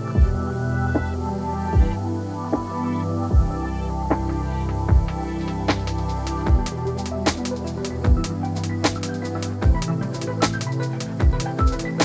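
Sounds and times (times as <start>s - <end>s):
electronic music with sustained tones: 0.0s - 12.0s
deep bass drum beat: 0.2s - 0.4s, 1.8s - 2.0s, 3.3s - 9.0s, 9.6s - 10.0s, 11.2s - 12.0s.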